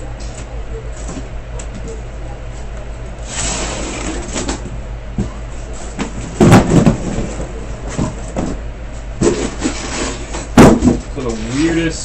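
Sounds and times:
cardboard scraping and rustling: 3.2s - 4.7s, 9.2s - 11.8s.

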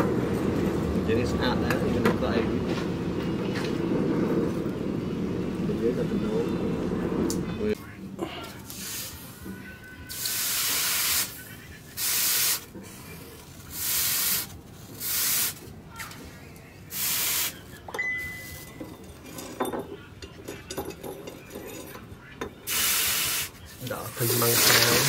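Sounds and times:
hot metal hissing in water: 10.1s - 11.4s, 24.1s - 25.0s.

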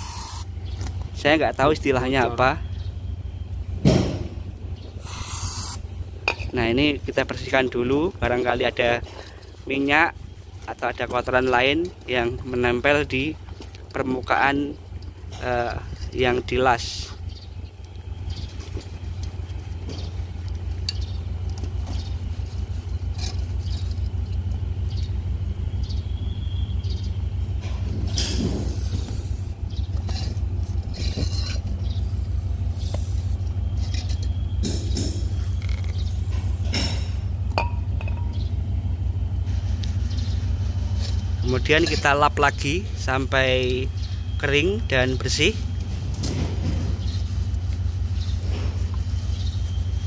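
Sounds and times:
low pulsing machine rumble: 0.0s - 50.0s
short scraping noises: 46.1s - 49.8s.

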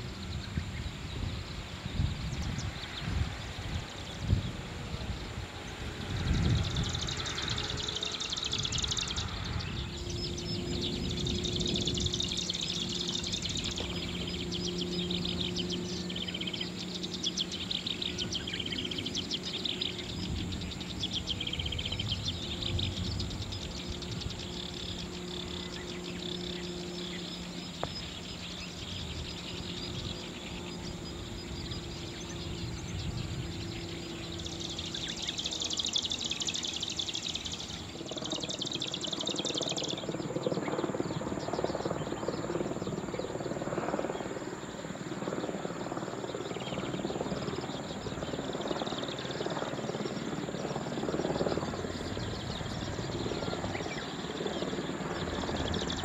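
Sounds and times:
bird singing high chirps: 6.2s - 42.4s.

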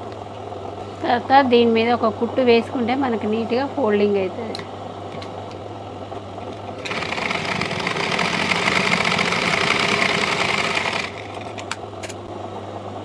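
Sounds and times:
sewing machine running: 6.4s - 11.7s.

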